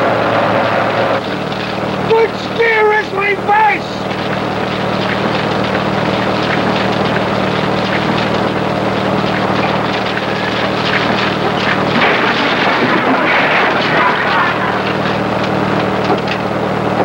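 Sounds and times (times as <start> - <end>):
loud mechanical drone: 0.0 - 17.0
clatter of wood: 1.2 - 2.2, 4.0 - 17.0.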